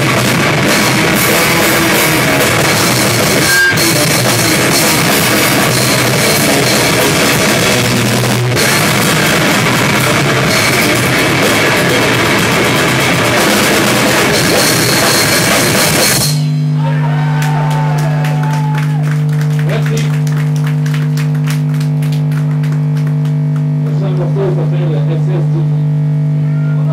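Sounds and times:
heavy rock band playing: 0:00.0 - 0:20.9
amplifier hum: 0:00.0 - 0:26.9.

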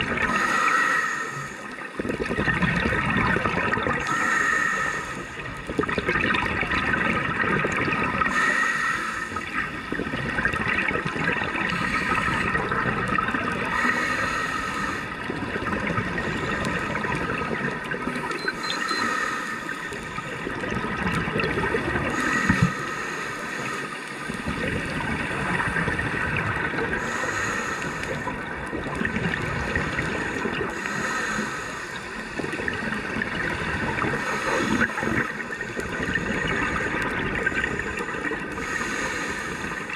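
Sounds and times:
bubbles hissing: 0:00.0 - 0:39.9
diver breathing through regulator: 0:00.3 - 0:01.8, 0:04.0 - 0:05.4, 0:08.2 - 0:09.5, 0:11.7 - 0:12.7, 0:13.7 - 0:15.2, 0:18.2 - 0:20.2, 0:22.1 - 0:26.1, 0:26.9 - 0:28.4, 0:29.5 - 0:33.2, 0:34.1 - 0:39.9.

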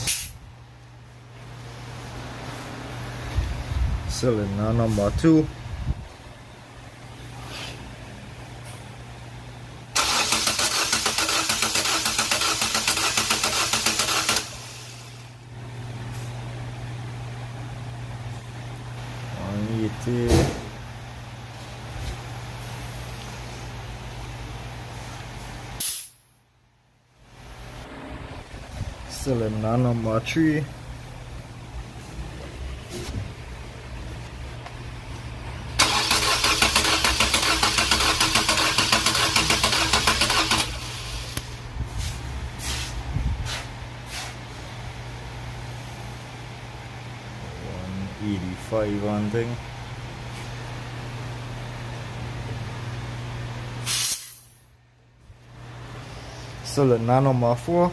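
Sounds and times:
steady low hum: 0:00.0 - 0:10.0, 0:11.8 - 0:57.9
starter motor cranking engine: 0:10.0 - 0:15.2, 0:35.8 - 0:41.4.

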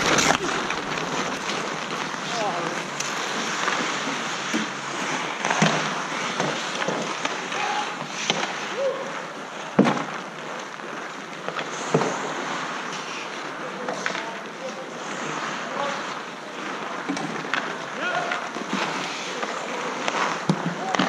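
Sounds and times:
hockey sticks clacking on puck: 0:00.0 - 0:21.0
skates hissing on ice: 0:00.0 - 0:21.0.

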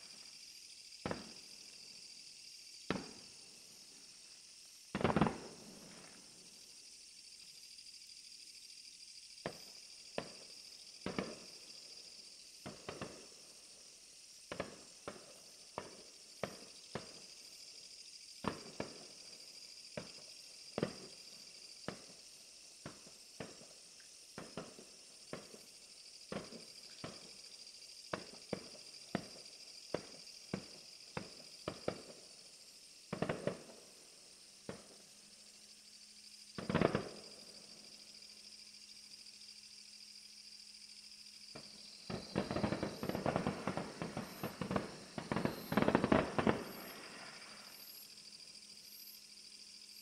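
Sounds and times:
steady high-pitched hiss: 0:00.0 - 0:50.0
fireworks bangs: 0:01.0 - 0:01.4, 0:02.9 - 0:03.3, 0:04.9 - 0:06.2, 0:11.0 - 0:11.5, 0:33.1 - 0:33.8, 0:36.6 - 0:37.3, 0:41.6 - 0:47.8.

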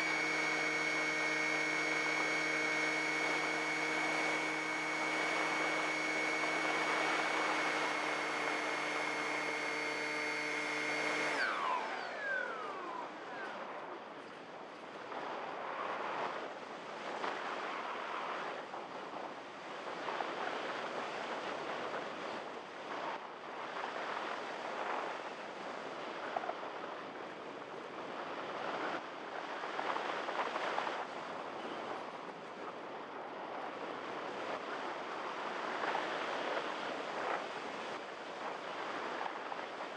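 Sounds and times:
electric motor whining: 0:00.0 - 0:13.7.

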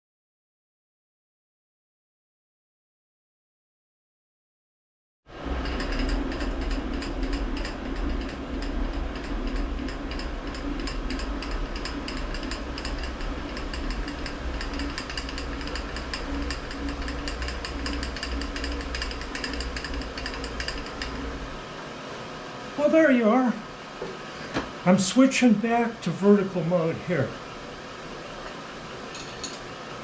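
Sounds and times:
milling machine motor hum: 0:05.3 - 0:30.0
gear drive clatter: 0:05.4 - 0:21.4.

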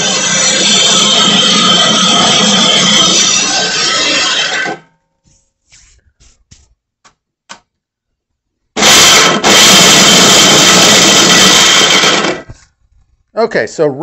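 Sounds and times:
grain mill grinding: 0:00.0 - 0:04.8, 0:08.8 - 0:12.6
loud steady sound: 0:00.0 - 0:04.8, 0:08.8 - 0:12.5.

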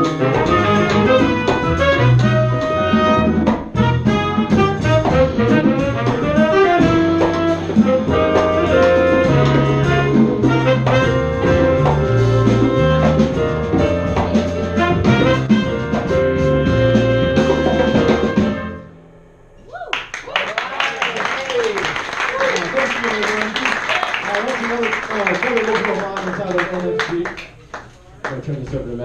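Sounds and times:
drums and percussion: 0:00.0 - 0:18.8
trumpet: 0:00.0 - 0:19.0
saxophone: 0:00.0 - 0:19.4
bass: 0:00.0 - 0:25.3
piano: 0:00.0 - 0:27.4.

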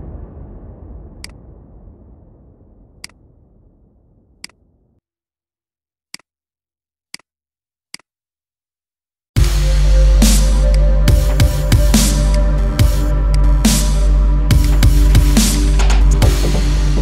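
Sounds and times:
electronic dance music: 0:09.4 - 0:17.0.

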